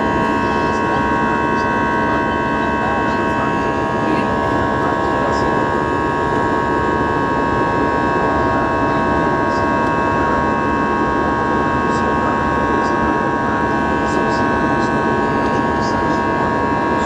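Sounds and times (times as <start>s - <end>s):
high-pitched engine whine: 0.0s - 17.0s.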